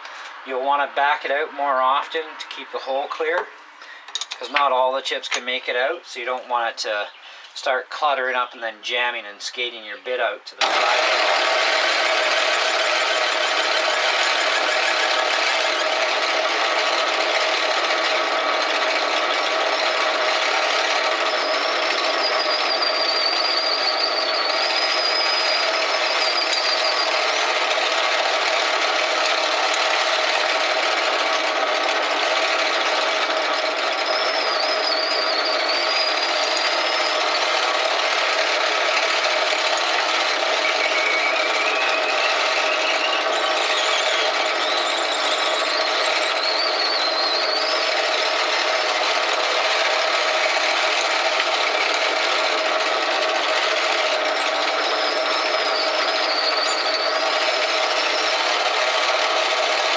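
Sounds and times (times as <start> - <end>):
metal lathe running: 10.6 - 59.9
high squeal of drill bit cutting: 10.7 - 16.1, 18.4 - 27.6, 32.2 - 37.8, 40.3 - 49.2, 50.5 - 58.8.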